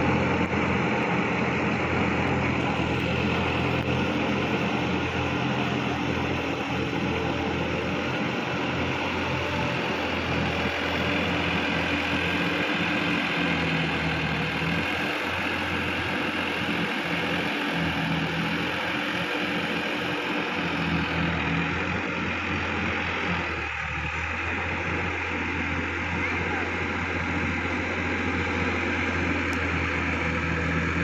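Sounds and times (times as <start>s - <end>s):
tractor diesel engine running: 0.0s - 31.0s.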